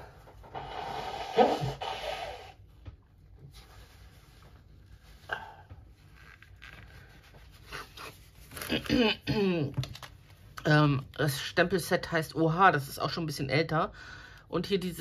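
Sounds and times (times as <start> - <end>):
person blowing nose: 0.4 - 2.7.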